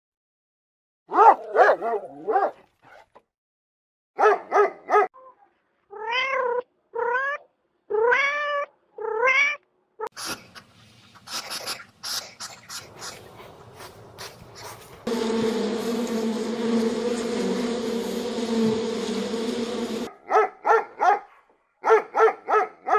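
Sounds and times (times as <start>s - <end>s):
cat meowing: 5.9s - 9.6s.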